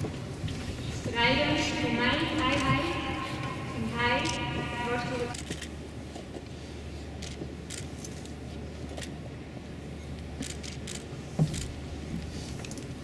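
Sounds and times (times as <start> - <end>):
hushed crowd rumble: 0.0 - 13.0
faint clicks and rustles: 10.1 - 13.0.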